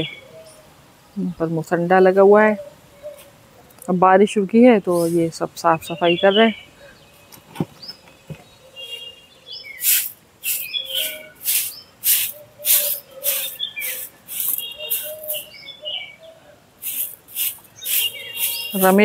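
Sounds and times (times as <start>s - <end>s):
birds chirping: 0.0s - 19.0s
broom sweeping leaves: 9.8s - 15.6s, 16.8s - 19.0s.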